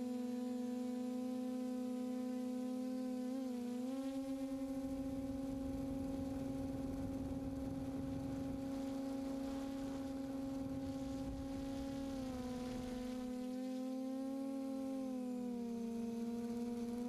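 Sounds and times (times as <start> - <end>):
drone propellers humming: 0.0 - 17.0
low wind rumble: 4.8 - 13.3.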